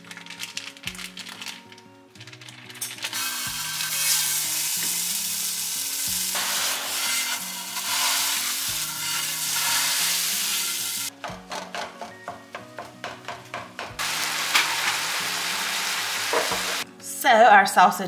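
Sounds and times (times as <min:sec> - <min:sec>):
sausage sizzling in skillet: 0:03.0 - 0:11.1, 0:14.0 - 0:16.8.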